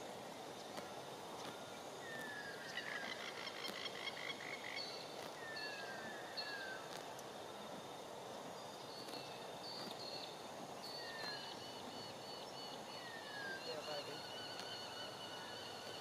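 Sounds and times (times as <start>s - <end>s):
outdoor background hiss: 0.0s - 16.0s.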